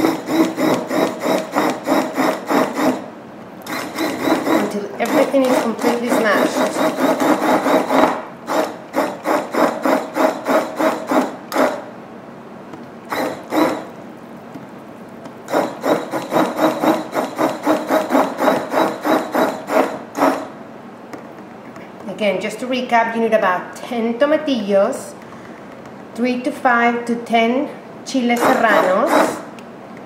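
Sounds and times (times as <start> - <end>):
immersion blender pulsing: 0.0 - 11.8, 13.1 - 14.0, 15.5 - 20.5, 28.4 - 29.5.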